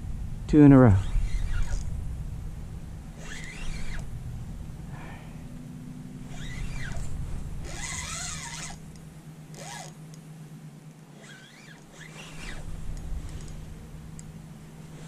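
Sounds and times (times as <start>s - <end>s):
fishing reel drag whining: 1.0s - 1.9s, 3.2s - 4.1s, 6.2s - 10.1s, 11.1s - 14.3s.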